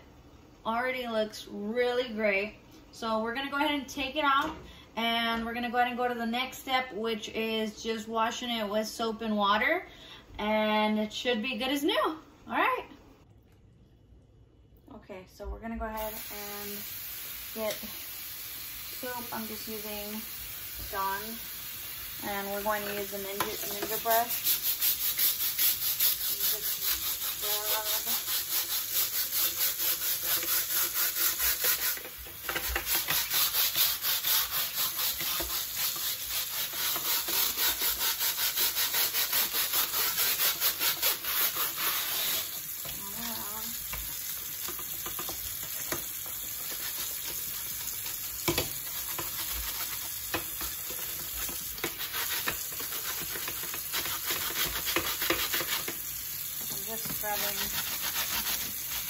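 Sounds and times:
brush scrubbing metal mesh: 23.2 - 42.6, 48.8 - 56.0, 56.8 - 59.0
running tap splashing: 26.8 - 59.0.

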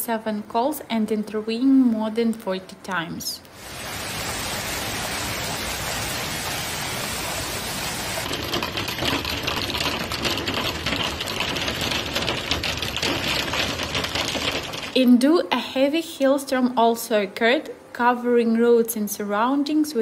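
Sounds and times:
hailstones hissing: 3.5 - 15.0
hailstones ticking on ground: 3.6 - 15.0.

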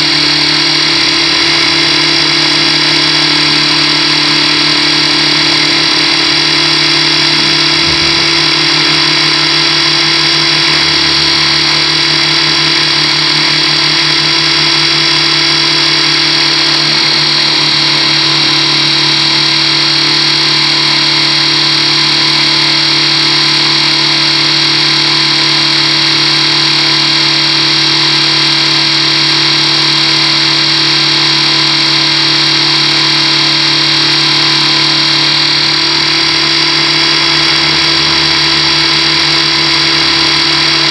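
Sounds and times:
model helicopter rotor whine: 0.0 - 40.9.

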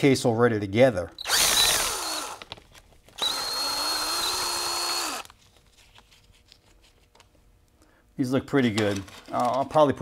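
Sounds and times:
cordless drill spinning: 1.2 - 2.6, 3.2 - 5.3.

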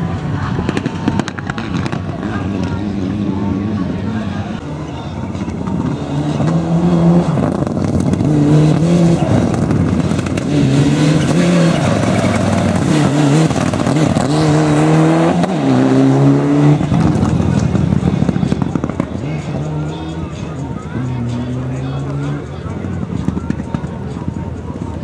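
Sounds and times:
rally car engine revving: 0.0 - 25.0.

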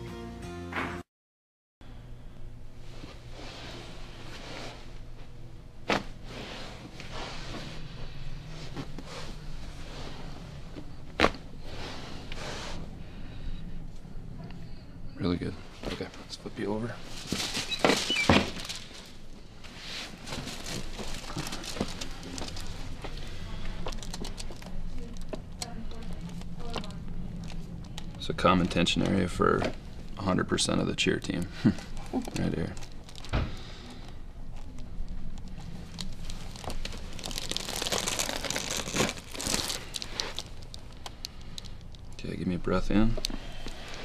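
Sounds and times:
short squeaks: 17.6 - 18.6.

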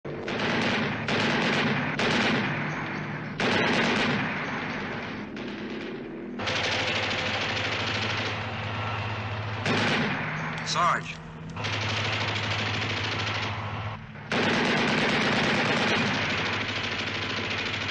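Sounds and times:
machine-gun fire: 0.2 - 11.0, 11.6 - 17.9
vehicle engines droning: 4.4 - 17.9.

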